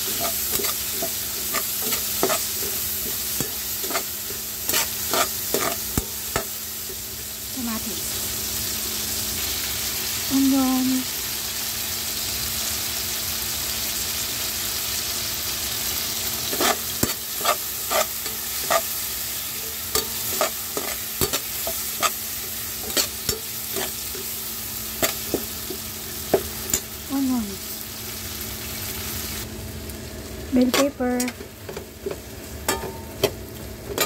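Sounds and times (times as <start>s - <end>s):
metal spatula scraping a pan: 0.0s - 6.5s, 16.4s - 24.4s
vegetables sizzling in a wok: 0.0s - 34.0s.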